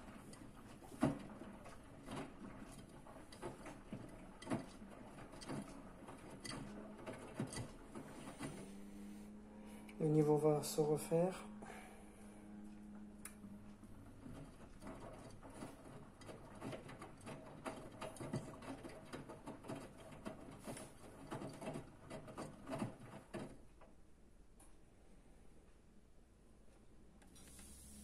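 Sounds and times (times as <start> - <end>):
laundry sloshing in washing machine: 0.0 - 11.4, 13.0 - 23.8.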